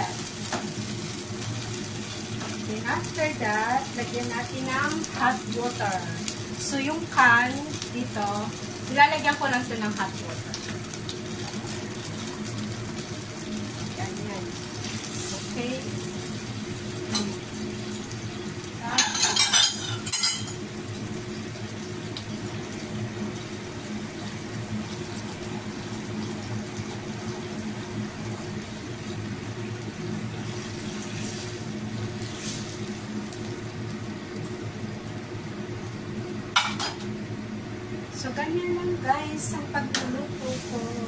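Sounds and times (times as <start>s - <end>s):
frying pan hissing: 0.0s - 41.0s
kitchenware clinking: 18.9s - 20.6s.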